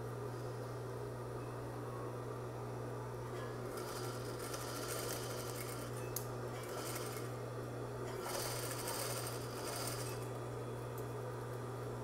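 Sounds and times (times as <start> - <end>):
sewing machine stitching: 3.7 - 5.9, 6.6 - 7.3, 8.1 - 10.2.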